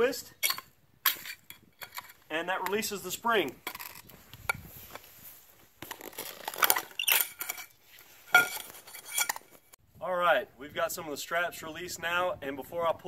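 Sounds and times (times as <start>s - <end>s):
metal clinks and knocks: 0.4s - 2.8s, 7.0s - 9.8s.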